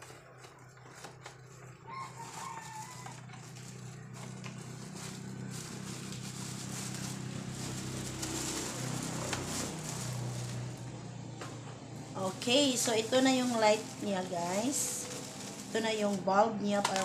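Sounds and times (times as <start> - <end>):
cardboard and plastic rustling: 0.0 - 11.6, 12.2 - 17.0.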